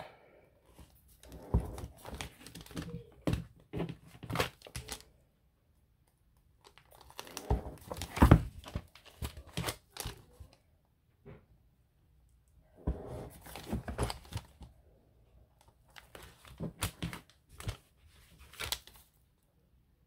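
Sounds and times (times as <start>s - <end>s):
stiff paper crinkling and rustling: 0.8s - 5.1s, 6.6s - 10.6s, 13.2s - 14.7s, 15.6s - 19.3s.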